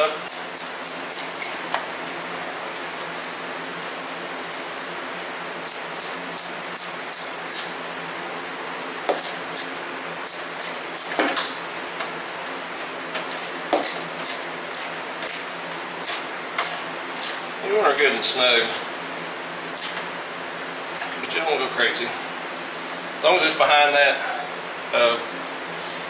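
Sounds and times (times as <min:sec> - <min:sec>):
ratchet clicking: 0:00.2 - 0:01.6, 0:05.7 - 0:07.7, 0:09.2 - 0:11.2, 0:13.3 - 0:18.8.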